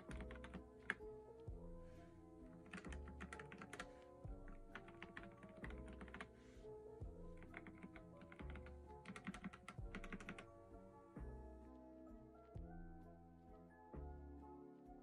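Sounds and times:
mechanical keyboard typing: 0.0 - 1.0, 2.6 - 3.9, 4.5 - 6.3, 7.4 - 10.5
soft background music: 0.0 - 15.0.

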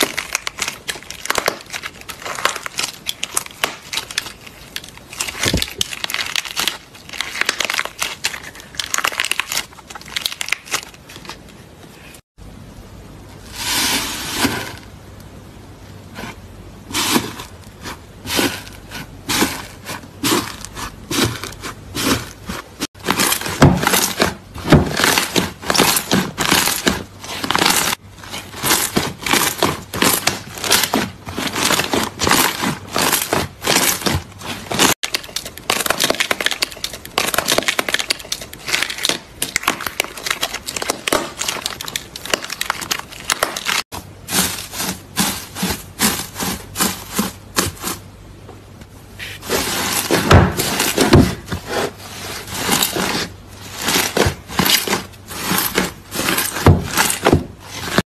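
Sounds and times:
slime crackling and popping: 0.0 - 11.1
gold foil crinkling: 0.0 - 11.6, 19.4 - 48.0.

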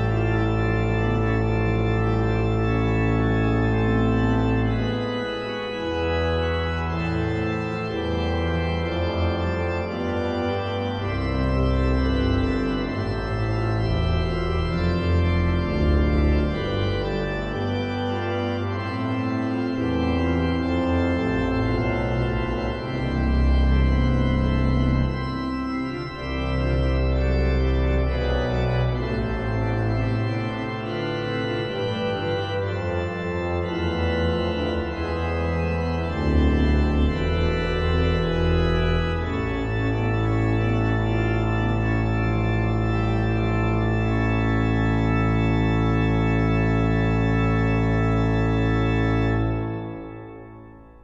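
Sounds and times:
church organ chords: 0.0 - 51.0.

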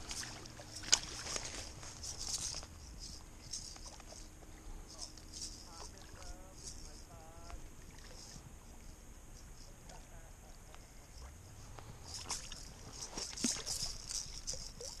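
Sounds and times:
fish splashing in water: 0.0 - 2.6.

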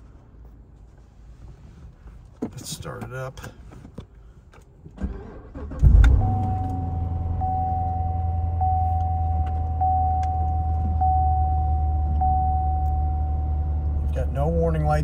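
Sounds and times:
car engine starting and idling: 4.4 - 15.0
steady high tone: 6.1 - 14.7.

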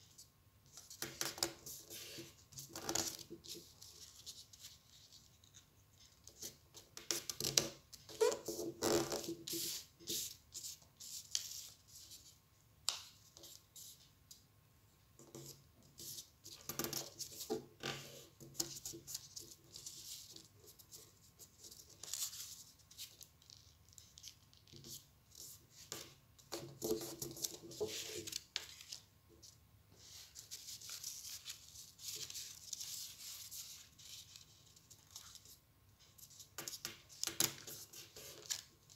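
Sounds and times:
paper rustling and creasing: 26.6 - 29.1.

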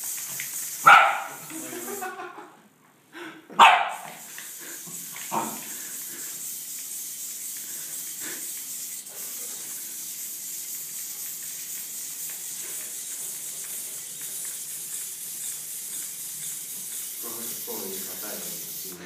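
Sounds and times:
high-pitched hiss: 4.0 - 19.0.

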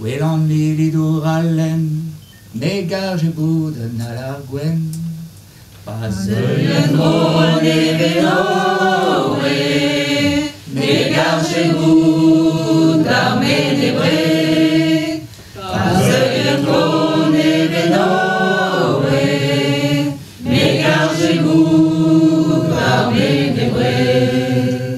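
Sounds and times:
mixed choir singing unaccompanied: 6.0 - 24.9.

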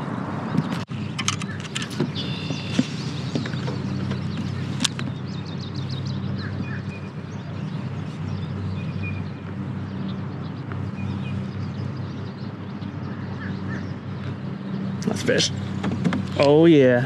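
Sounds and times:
small birds chirping: 0.0 - 17.0
sharp click: 0.6 - 3.8.

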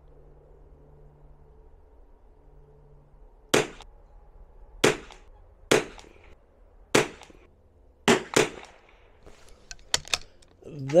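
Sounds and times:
rifle shots with echo: 3.5 - 3.8, 4.8 - 6.1, 6.9 - 7.4, 8.0 - 8.9.

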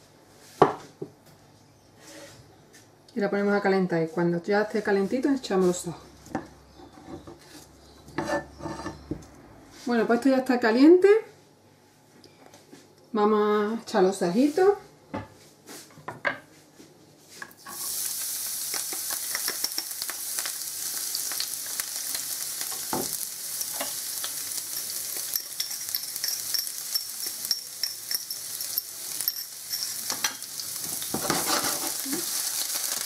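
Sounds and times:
garlic sizzling in hot oil: 17.6 - 33.0.

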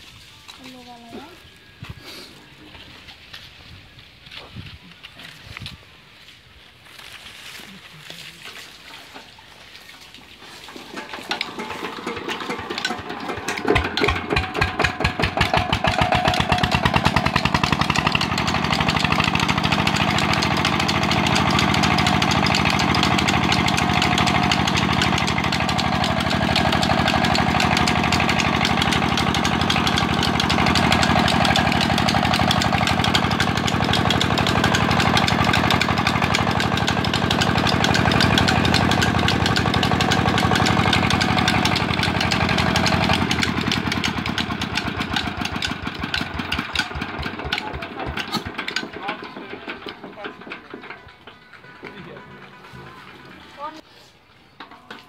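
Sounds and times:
diesel engine running: 10.4 - 53.8.

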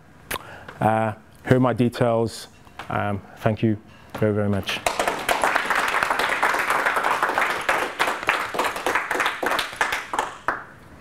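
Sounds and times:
audience applauding: 4.8 - 10.7.

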